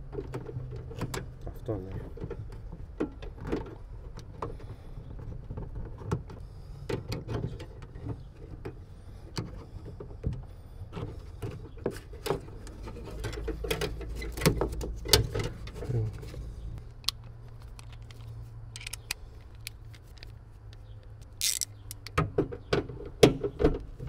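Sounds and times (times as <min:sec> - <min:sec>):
metal clicks and scrapes: 0:11.9 - 0:22.2.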